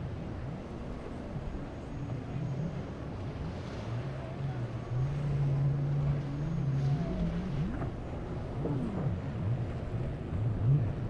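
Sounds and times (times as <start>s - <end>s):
motorboat engine running: 0.0s - 11.0s
rushing water: 0.0s - 11.0s.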